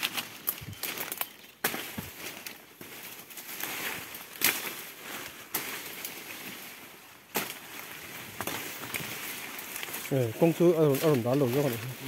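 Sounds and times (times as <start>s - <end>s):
leaves and branches rustling: 0.0s - 12.0s
twigs crackling: 0.0s - 12.0s
loud branch snaps: 4.3s - 4.8s, 7.3s - 7.6s.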